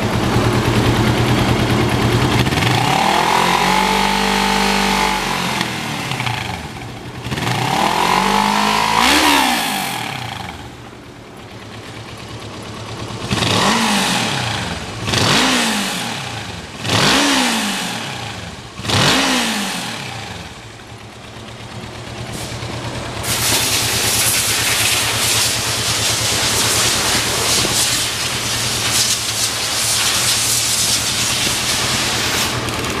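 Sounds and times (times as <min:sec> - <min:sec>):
motorcycle engine revving and idling: 0:00.0 - 0:33.0
hiss: 0:22.3 - 0:22.6, 0:23.2 - 0:32.7.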